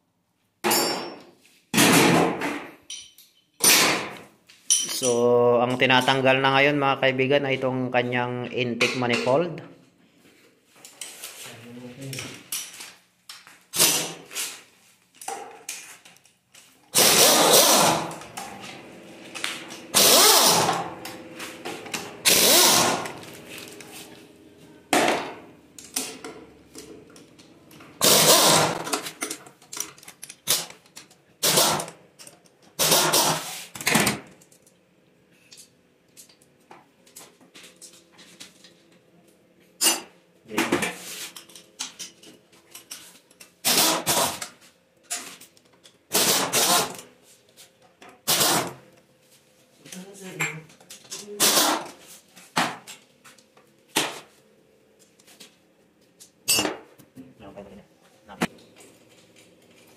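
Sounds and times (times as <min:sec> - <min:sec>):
power tool bursts: 0:16.9 - 0:18.2, 0:19.9 - 0:20.9, 0:22.2 - 0:23.2, 0:28.0 - 0:28.9, 0:31.4 - 0:31.9.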